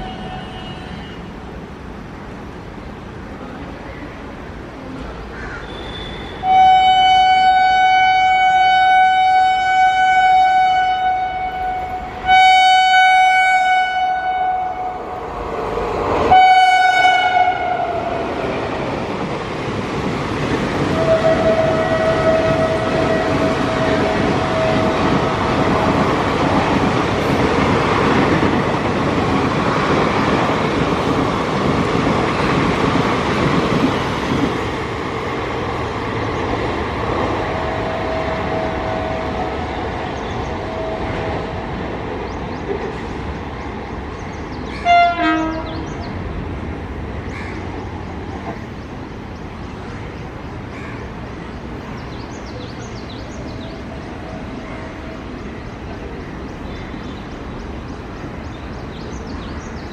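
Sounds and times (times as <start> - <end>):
locomotive horn blasts: 0.0 - 1.3, 5.7 - 15.1, 16.3 - 18.1, 20.9 - 25.4, 44.8 - 45.9
train coaches passing over rails: 0.0 - 59.9.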